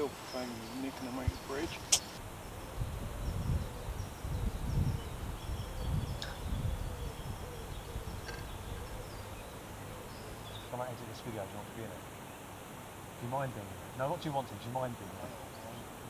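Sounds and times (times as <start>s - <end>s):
wind buffeting microphone: 0.0s - 10.7s.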